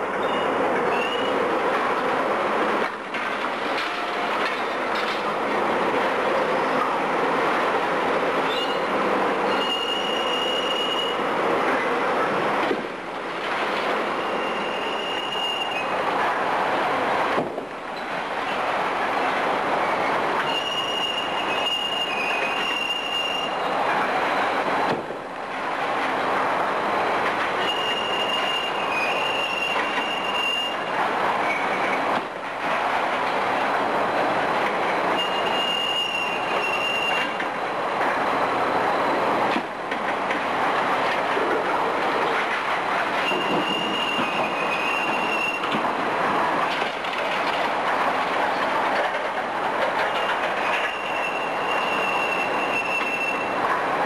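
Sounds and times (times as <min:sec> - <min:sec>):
excavator rattle and rumble: 0:00.0 - 0:09.2, 0:39.4 - 0:52.4
high metallic squeal: 0:08.4 - 0:08.9, 0:09.5 - 0:11.2, 0:14.2 - 0:16.0, 0:20.4 - 0:23.7, 0:27.6 - 0:30.8, 0:35.2 - 0:37.3, 0:43.2 - 0:45.7, 0:50.1 - 0:53.5.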